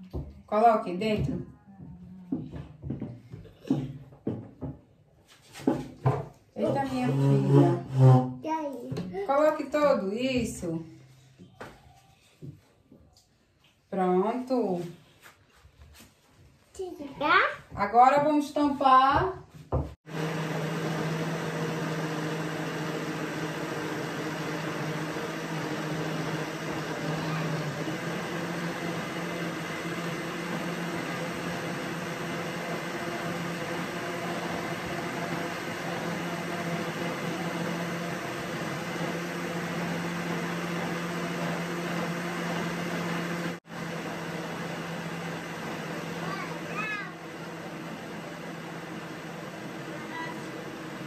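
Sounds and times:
electric blender running: 0:06.6 - 0:08.2, 0:20.0 - 0:51.0.

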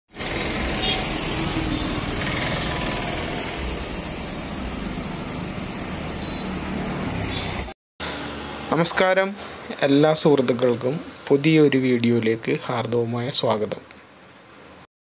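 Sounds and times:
car engine idling: 0:00.2 - 0:06.7.

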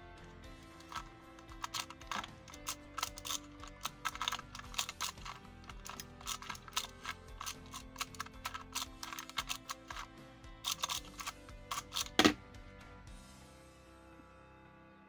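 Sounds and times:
background music: 0:00.0 - 0:15.0
puzzle cube clicking: 0:00.8 - 0:12.4.

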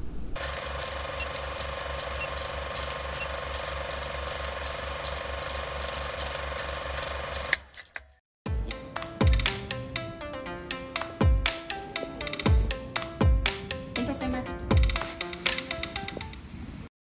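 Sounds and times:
film projector clatter and whir: 0:00.4 - 0:08.0.

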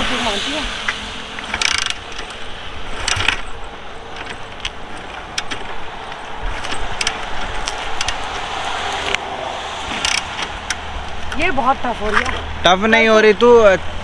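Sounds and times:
kick lever ratchet clicks: 0:01.4 - 0:02.3.

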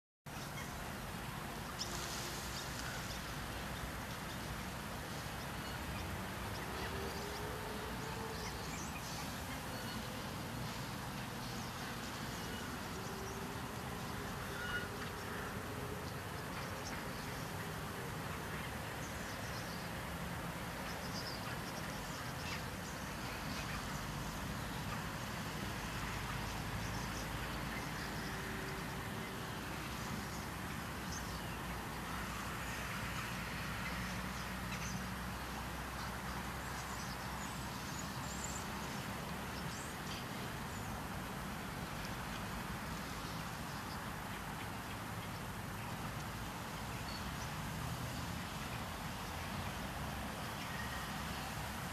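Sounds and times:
distant traffic rumble: 0:00.3 - 0:51.9.

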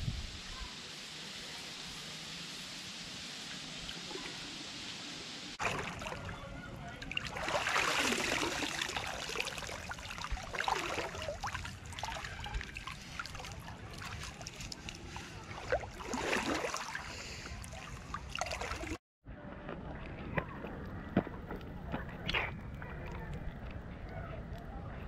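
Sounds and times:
water splashing: 0:05.5 - 0:19.0
water sloshing around wading person: 0:05.6 - 0:19.0.

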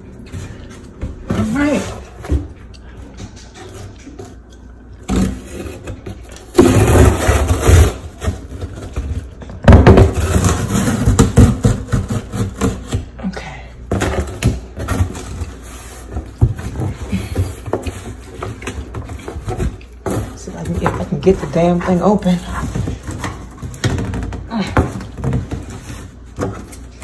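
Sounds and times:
cardboard scraping and rubbing: 0:05.1 - 0:09.3, 0:09.9 - 0:13.0.

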